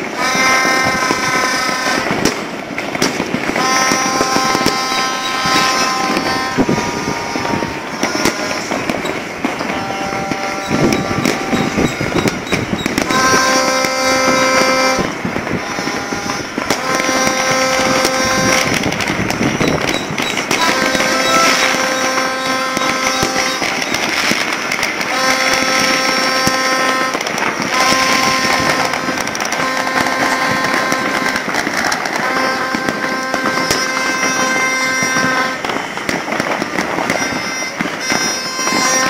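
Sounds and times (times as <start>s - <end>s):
fireworks crackling and banging: 0.0s - 39.0s
horn blasts: 0.0s - 39.0s.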